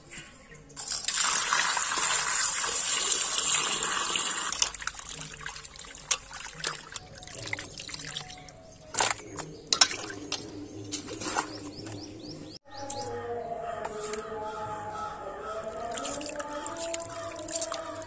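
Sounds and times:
water pouring into steel basin: 0.8s - 8.4s
water splashing and dripping: 0.8s - 12.0s, 15.8s - 18.0s.

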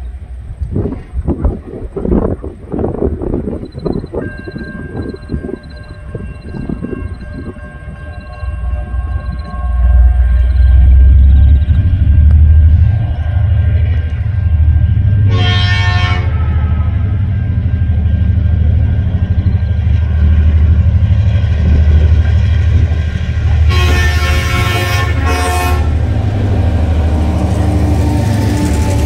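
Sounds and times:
diesel locomotives rumbling: 0.0s - 29.0s
train horn blasts: 7.8s - 17.5s, 23.5s - 26.5s.

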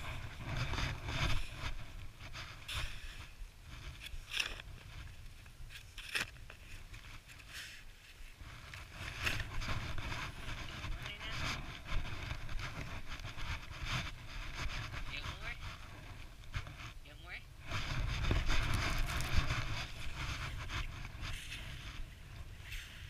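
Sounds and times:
plastic snow shovel scraping snow: 0.0s - 17.0s, 17.6s - 23.0s.

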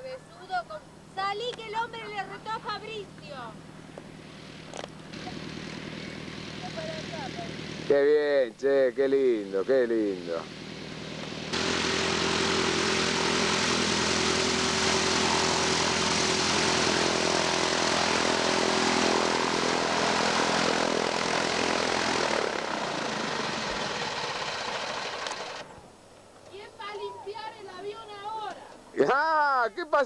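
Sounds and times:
light plane engine droning: 0.0s - 29.0s.

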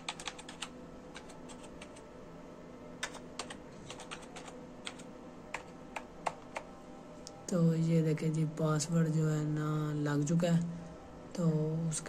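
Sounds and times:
keyboard keys tapping: 0.0s - 2.0s, 3.0s - 6.7s
faint steady hum: 0.0s - 12.0s.

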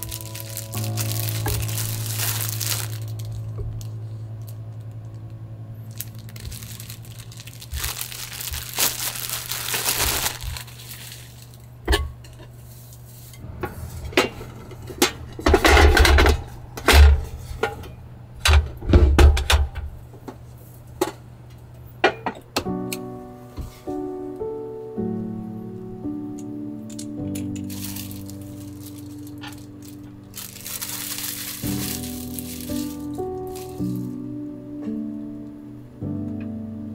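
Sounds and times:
rustling: 0.0s - 4.1s, 5.9s - 11.6s, 27.3s - 34.2s
steady low hum: 0.0s - 36.9s.

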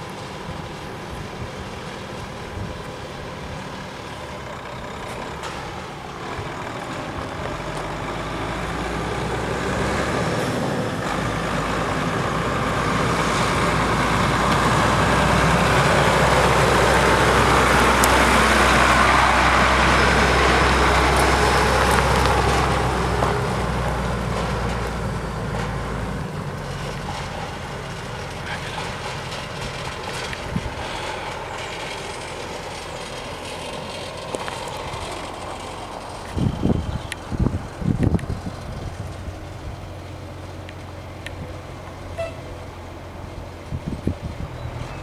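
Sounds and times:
truck engine hum: 0.0s - 45.0s
tyre noise on gravel: 16.9s - 25.0s.

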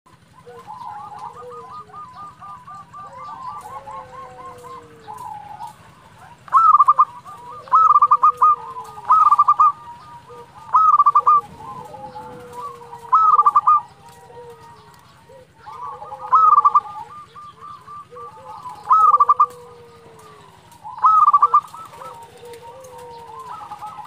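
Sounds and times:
dove rolling coo: 0.1s - 24.0s
fainter cooing: 0.5s - 24.0s.

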